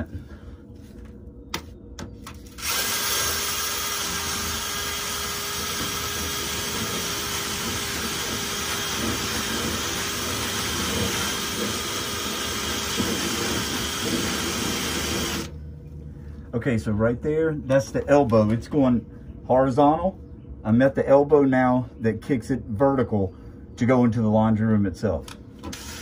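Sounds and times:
cordless drill spinning brush: 2.4s - 15.5s, 25.6s - 26.0s.

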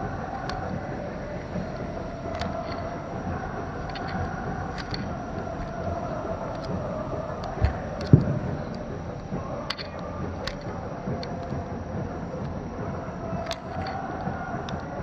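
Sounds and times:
outdoor night background noise: 0.0s - 15.0s.

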